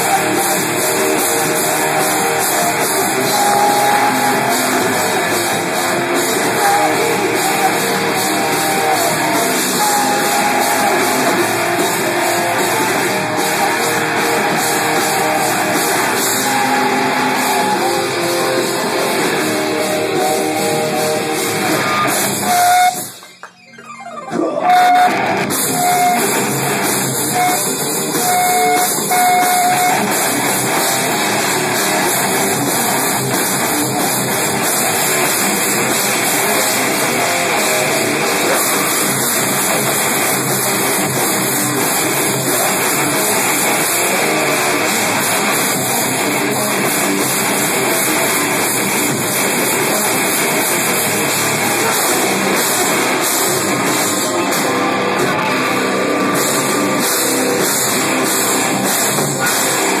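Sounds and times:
drum kit: 0.0 - 23.6, 24.4 - 60.0
distorted electric guitars: 0.0 - 60.0.

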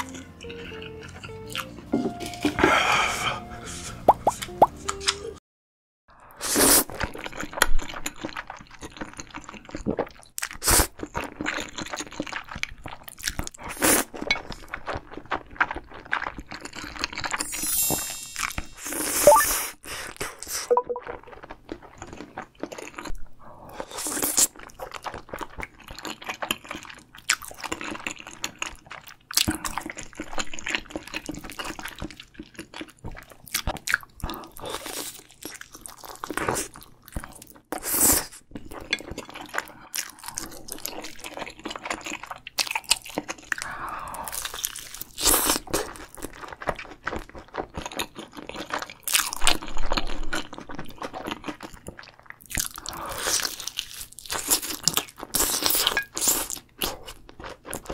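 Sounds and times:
wet chewing: 0.0 - 2.6, 23.8 - 57.9.

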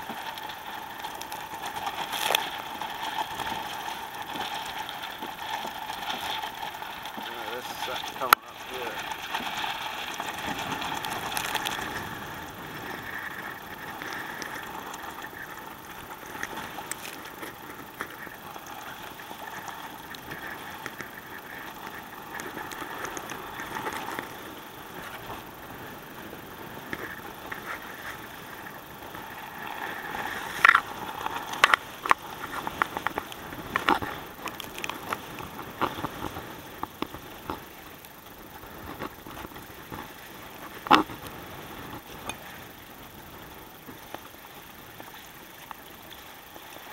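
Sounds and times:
water rushing along a hull: 0.0 - 46.9.

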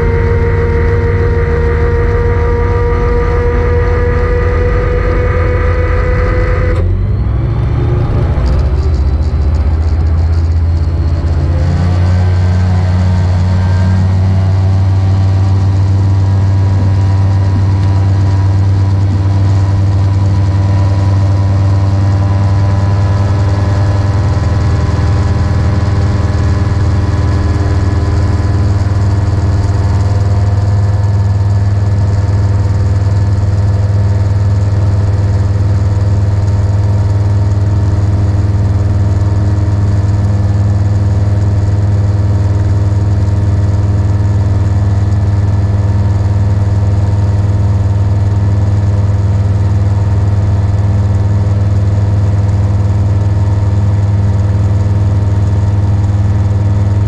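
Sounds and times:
gyroplane engine and propeller hum: 0.0 - 57.0.

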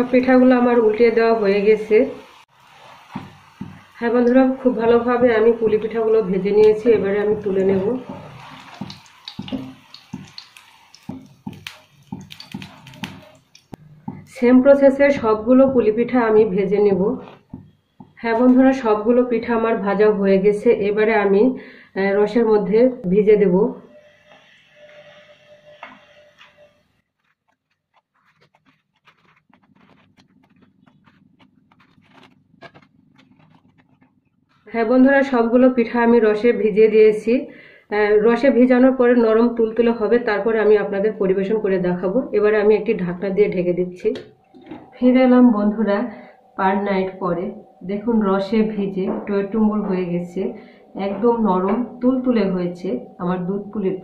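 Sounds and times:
oil sizzling: 0.0 - 16.8, 23.9 - 26.7.

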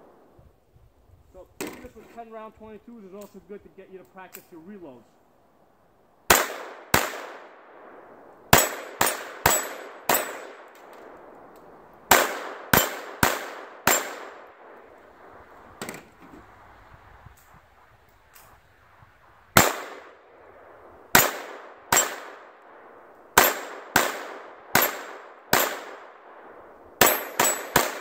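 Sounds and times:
pistol shots: 6.3 - 11.4, 12.1 - 15.0, 19.6 - 20.2, 21.1 - 28.0
metallic clang of steel targets: 8.6 - 10.5, 27.0 - 28.0.

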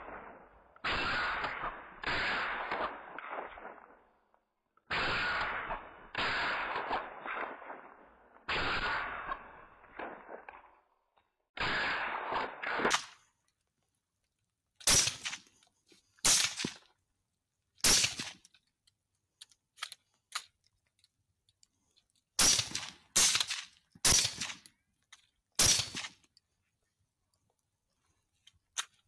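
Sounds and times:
rifle shots: 0.0 - 4.1, 4.9 - 10.8, 11.6 - 13.3, 14.8 - 15.5, 16.2 - 16.8, 17.8 - 18.5, 22.4 - 24.7, 25.6 - 26.3.

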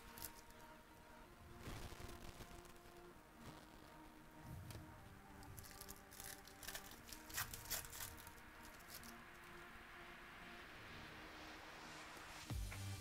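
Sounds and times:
foil wrapper tearing and crinkling: 1.6 - 3.7, 5.3 - 9.5.

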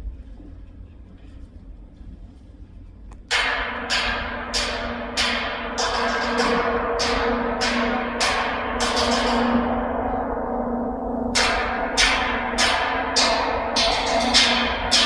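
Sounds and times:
large gong ringing: 3.3 - 15.0.

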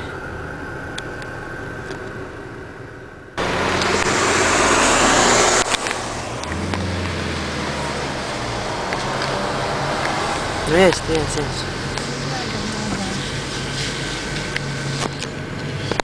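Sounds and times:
car engine hum from inside: 0.0 - 16.0
vehicle engine rumble: 0.0 - 16.0
loud rushing hiss: 3.4 - 15.0.

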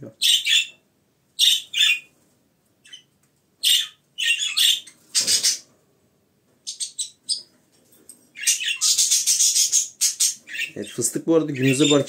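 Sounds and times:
budgerigars chirping and squawking: 0.2 - 0.8, 1.4 - 2.1, 2.8 - 5.7, 6.6 - 7.5, 8.3 - 12.0.

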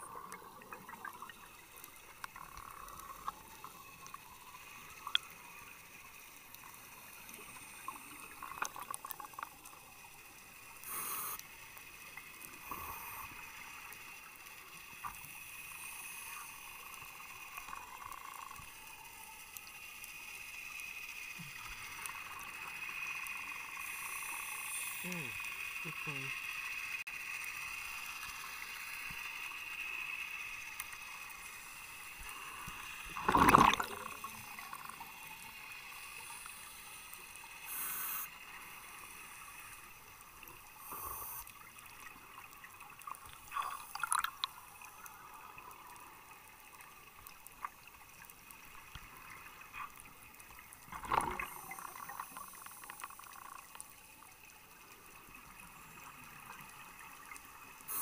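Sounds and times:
water bubbling and gurgling: 0.0 - 14.4, 32.0 - 58.0
faint steady hiss: 0.0 - 58.0.

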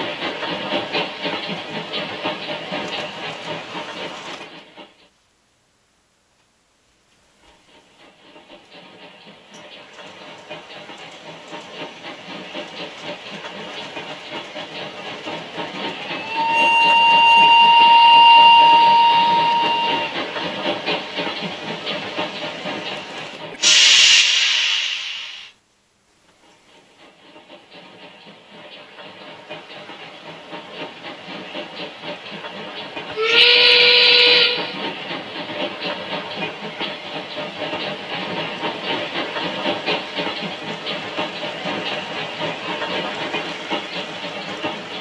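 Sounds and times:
model steam locomotive hissing: 0.0 - 5.1, 7.4 - 25.6, 26.4 - 45.0
steam whistle blast: 16.1 - 20.2, 23.6 - 25.1, 33.2 - 34.8.

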